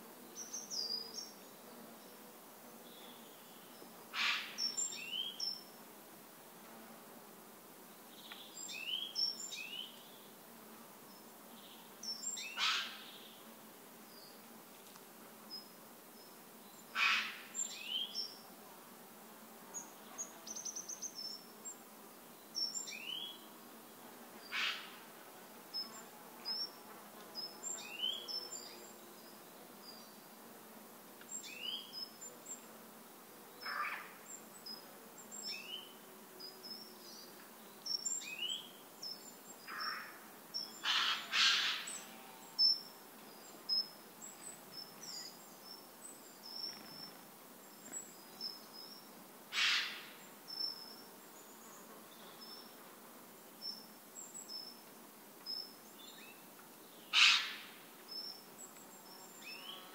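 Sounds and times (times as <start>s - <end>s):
faint steady hiss: 0.0s - 59.9s
harsh bird call bursts: 40.8s - 41.9s, 57.1s - 57.6s
rising bird call: 57.1s - 57.7s.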